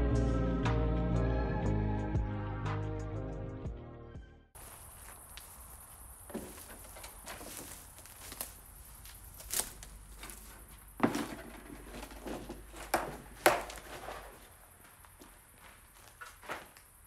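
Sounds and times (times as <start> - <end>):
footsteps crunching on debris: 4.6 - 17.0.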